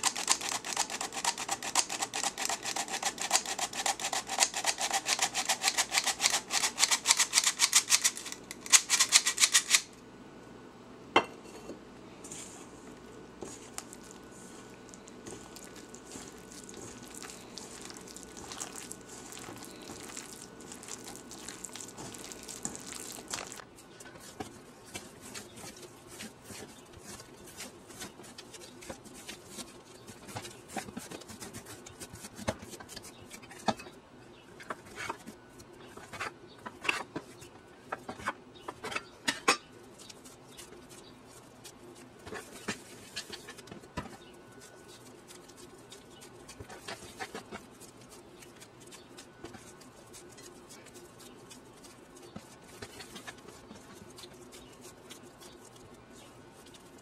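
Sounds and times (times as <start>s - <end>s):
faint steady hum: 0.0s - 57.0s
dough scraping in steel bowl: 15.2s - 33.9s.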